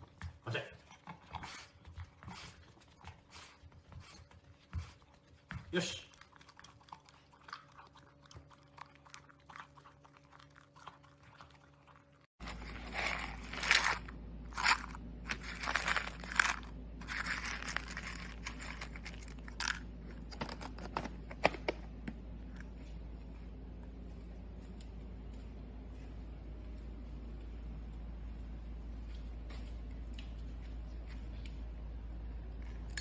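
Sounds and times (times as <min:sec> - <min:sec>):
dog crunching kibble: 0:06.1 - 0:20.7
kibble rattling in plastic cup: 0:12.4 - 0:20.5.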